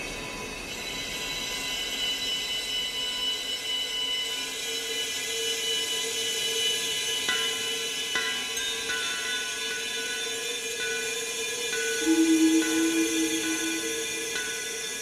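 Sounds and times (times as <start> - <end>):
steady hiss: 0.0 - 15.0
layered high drone tones: 12.0 - 15.0.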